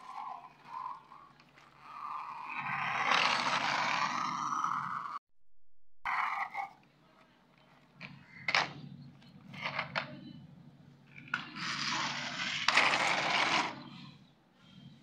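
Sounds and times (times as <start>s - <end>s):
toy truck scraping on concrete: 0.0s - 5.2s, 6.1s - 6.8s, 11.2s - 14.1s.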